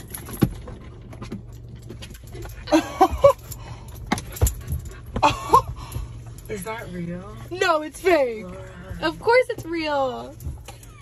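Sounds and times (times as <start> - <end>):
dog whining: 10.6 - 11.0.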